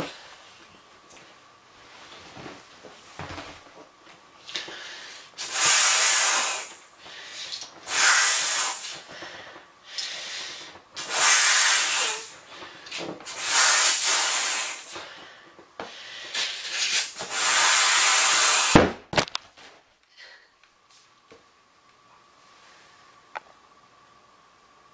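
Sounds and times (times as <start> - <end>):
person breathing: 4.5 - 5.4, 9.0 - 10.8, 15.0 - 16.4, 20.1 - 20.5
person blowing into beach ball: 5.4 - 9.0, 11.0 - 12.4, 13.3 - 15.0, 16.3 - 18.9.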